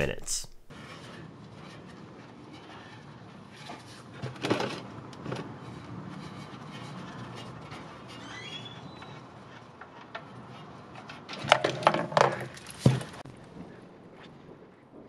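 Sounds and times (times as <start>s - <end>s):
oil drain plug squeak: 7.8s - 9.5s.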